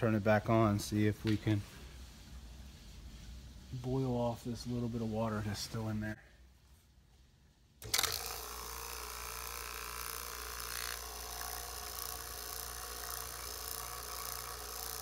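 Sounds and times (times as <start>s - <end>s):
vacuum pump humming: 7.8s - 15.0s.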